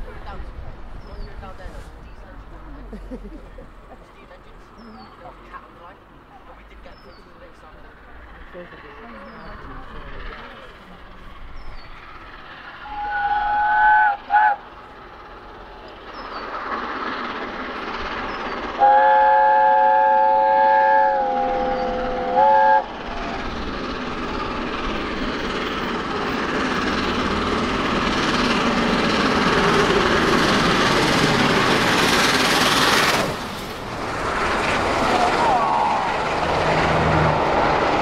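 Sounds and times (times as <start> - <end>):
steam locomotive passing: 0.0 - 38.0
train horn chord: 18.8 - 22.9.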